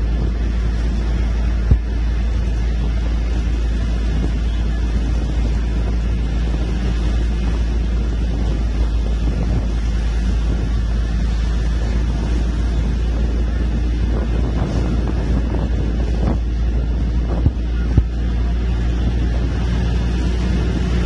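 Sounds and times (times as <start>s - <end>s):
bus engine and road rumble: 0.0s - 21.0s
wind buffeting microphone: 0.0s - 21.0s.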